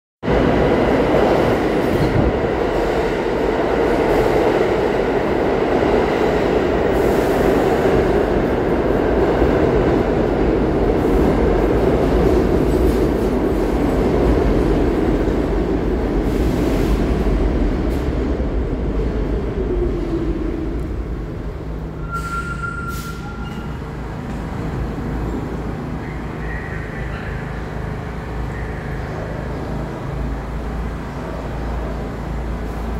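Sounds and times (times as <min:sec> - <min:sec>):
train wheels rumbling on rails: 0:00.2 - 0:32.9
train brakes whining: 0:22.0 - 0:23.9.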